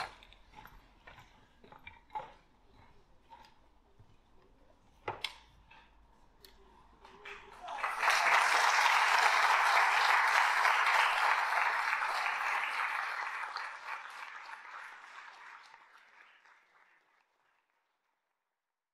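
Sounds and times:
audience applauding: 7.2s - 17.8s.

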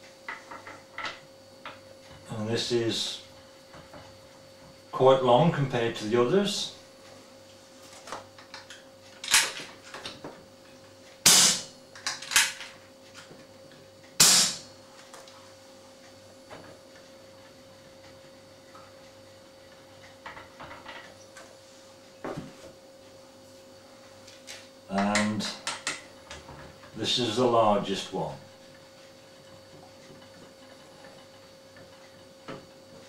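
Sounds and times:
silenced air rifle shots: 11.3s - 11.6s, 14.2s - 14.6s.

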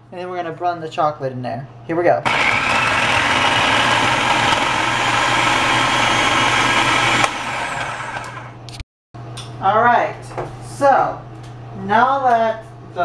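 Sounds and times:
food processor chopping: 2.3s - 8.6s.

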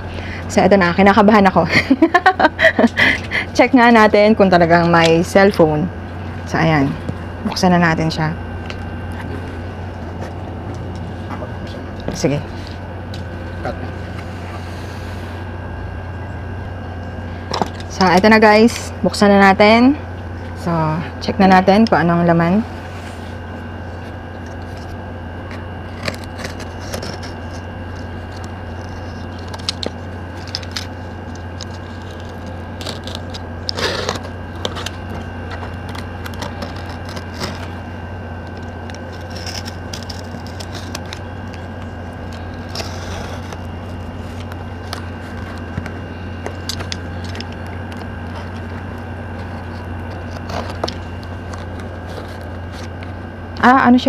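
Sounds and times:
steady low hum: 0.0s - 54.0s
cardboard scraping and crackling: 22.9s - 53.3s.

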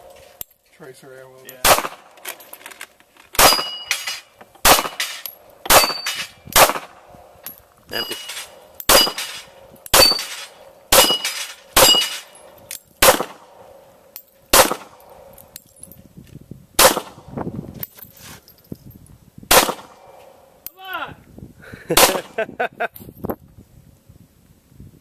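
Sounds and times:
handgun shots: 1.6s - 2.1s, 3.4s - 6.9s, 8.0s - 12.3s, 13.0s - 13.4s, 14.5s - 15.0s
steel plate metallic ring: 3.4s - 4.3s, 4.9s - 6.5s, 7.9s - 12.6s.

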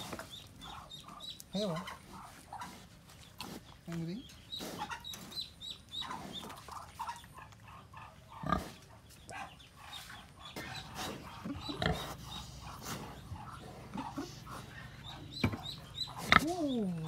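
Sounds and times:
pig grunting: 6.0s - 8.9s, 10.6s - 17.0s.

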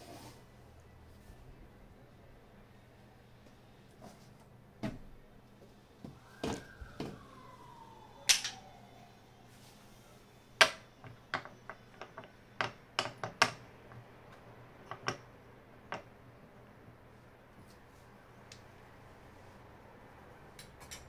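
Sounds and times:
wooden discs clicking and knocking: 8.3s - 8.6s, 10.6s - 16.2s.

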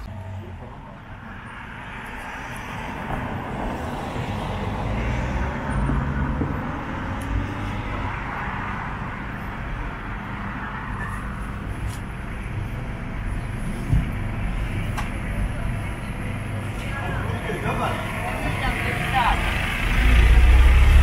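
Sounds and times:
car going by: 17.0s - 21.0s.

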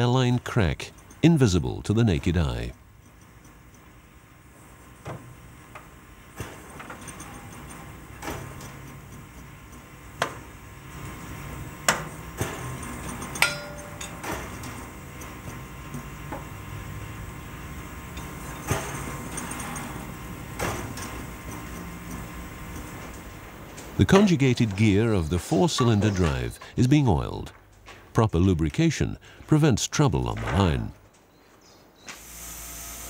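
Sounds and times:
hammer tapping metal: 13.3s - 14.3s.

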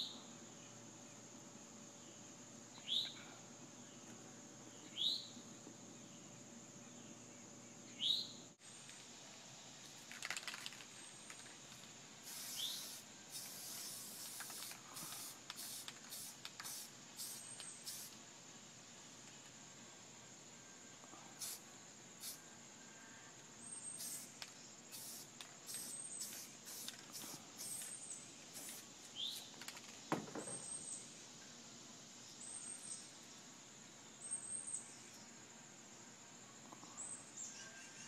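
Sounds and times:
bird chirping: 2.0s - 3.2s, 3.8s - 8.4s, 12.3s - 18.1s, 23.6s - 29.6s, 34.1s - 35.4s, 36.7s - 38.0s
spray paint can hissing: 10.0s - 18.2s, 21.4s - 22.4s, 23.9s - 29.6s.

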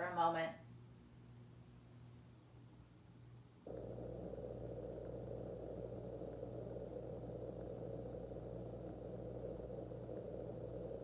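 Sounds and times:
faint hiss: 0.0s - 11.0s
low mechanical hum: 0.0s - 11.0s.

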